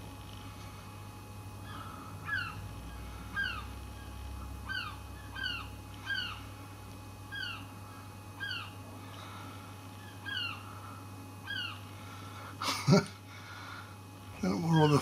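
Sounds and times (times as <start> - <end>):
gull calling: 1.6 - 6.5, 7.3 - 12.5, 14.4 - 15.0.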